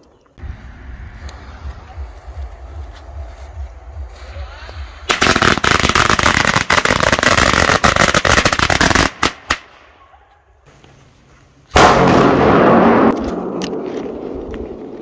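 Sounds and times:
loud rush of noise: 0.4 - 5.1
firecracker crackling bangs: 5.0 - 9.6, 11.8 - 13.6.

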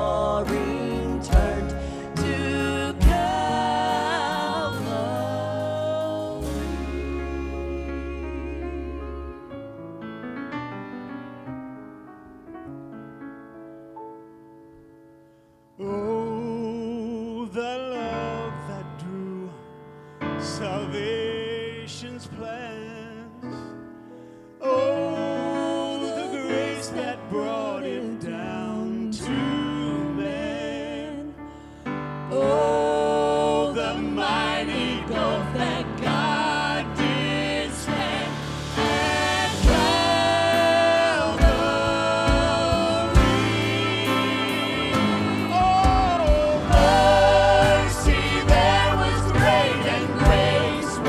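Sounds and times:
man singing worship song: 0.0 - 9.2, 15.8 - 19.8, 20.4 - 23.8, 24.6 - 31.4, 32.3 - 51.0
band with guitar and bass: 0.0 - 9.9, 34.0 - 51.0
piano accompaniment: 0.0 - 51.0.

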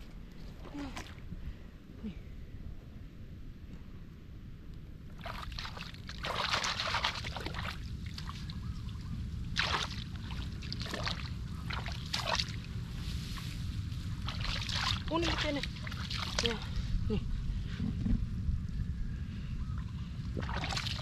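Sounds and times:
steady low rumble: 0.0 - 21.0
muddy water splashing: 5.1 - 16.9, 19.8 - 21.0.

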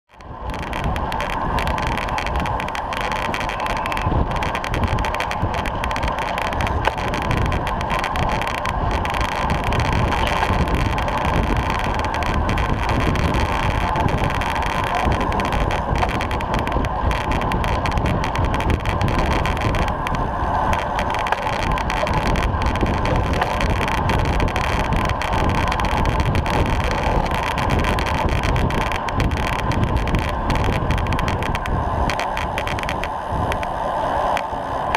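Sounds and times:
bicycle tyres on tarmac: 0.1 - 34.9
wind rush: 0.1 - 34.9.

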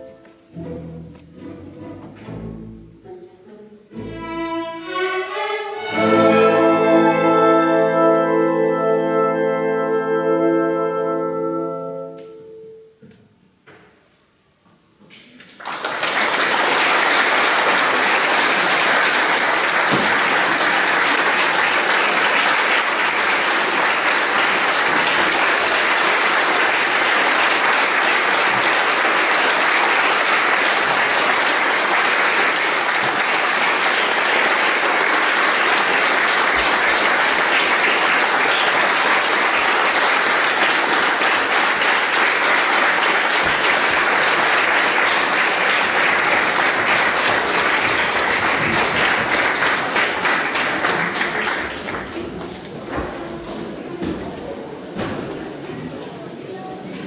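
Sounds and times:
audience applause: 15.5 - 55.5.

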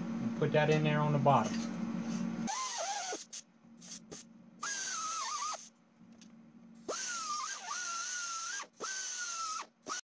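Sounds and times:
pneumatic cutoff tool cutting wire: 2.5 - 5.7, 6.8 - 10.0.

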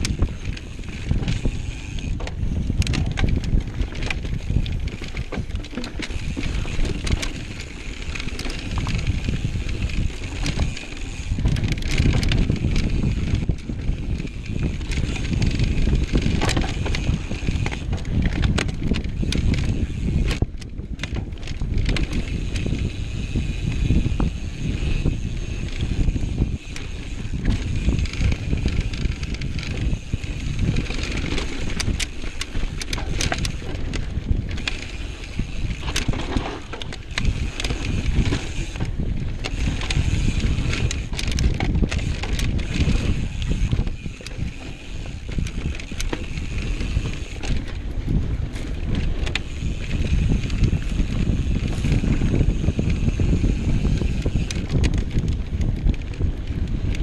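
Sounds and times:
bike clicking and rattling: 0.0 - 57.0
tyres on dirt and rock: 0.0 - 57.0
wind rumble on microphone: 0.0 - 57.0.

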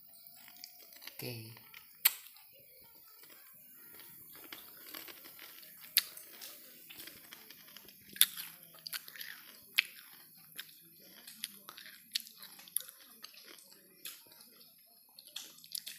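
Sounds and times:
leaf wrapper rustling and crinkling: 3.0 - 9.5.

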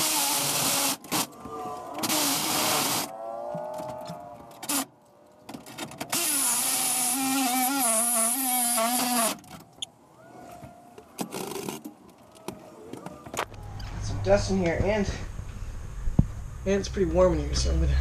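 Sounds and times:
reciprocating saw cutting steel: 6.2 - 9.4.

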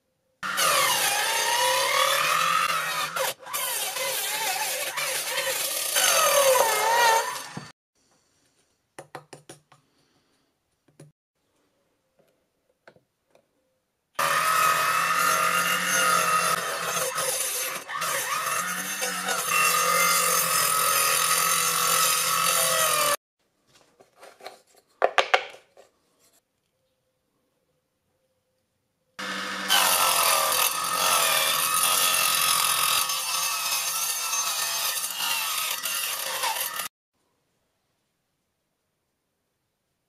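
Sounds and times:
angle grinder cutting plastic pipe: 0.4 - 7.7, 14.2 - 23.2, 29.2 - 36.9
angle grinder cutting wood: 0.4 - 7.7, 14.2 - 23.2, 29.2 - 36.9.

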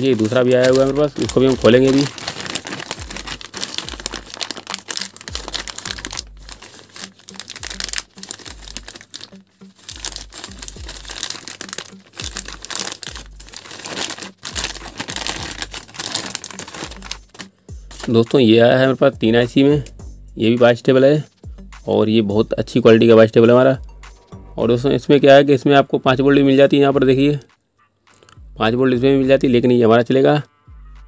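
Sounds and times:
plastic bag crinkling: 0.0 - 18.3.

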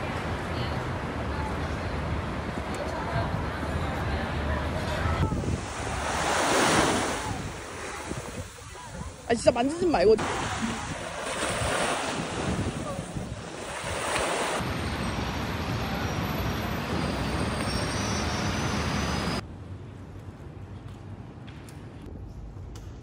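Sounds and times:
waves washing onto beach: 0.0 - 19.4
city traffic hum: 0.0 - 23.0
wind on microphone: 2.6 - 14.7.

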